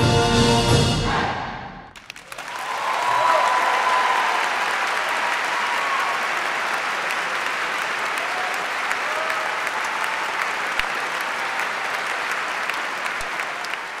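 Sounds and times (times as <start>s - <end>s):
audience applauding: 2.0s - 14.0s.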